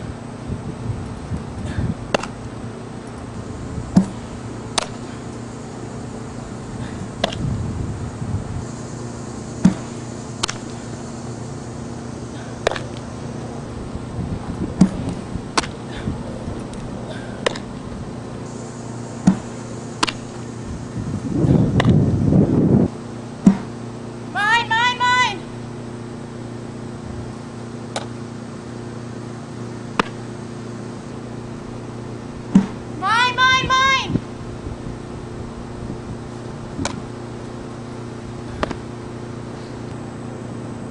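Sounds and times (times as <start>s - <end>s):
low hum: 0.0s - 40.9s
ball smacking into gloves: 2.1s - 2.4s, 12.6s - 13.0s, 17.4s - 17.7s, 30.0s - 30.2s, 38.6s - 38.8s
person calling high-pitched: 24.3s - 25.5s, 33.0s - 34.2s
ball cracking off bat: 30.0s - 30.2s.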